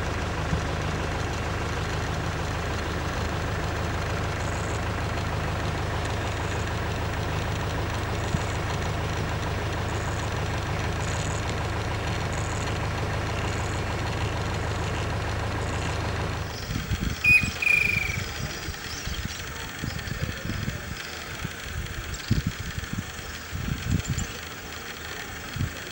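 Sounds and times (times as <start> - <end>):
vehicle engine idling: 0.0 - 25.9
short high falling call: 17.1 - 18.7.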